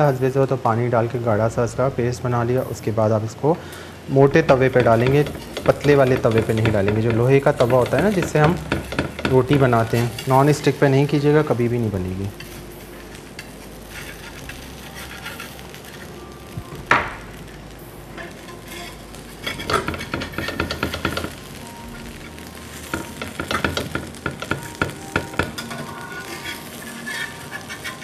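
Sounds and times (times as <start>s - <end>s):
flatbread sizzling on iron pan: 3.7s - 28.0s
metal spatula scraping and tapping: 4.5s - 10.9s, 12.4s - 16.1s, 18.2s - 21.4s, 22.8s - 28.0s.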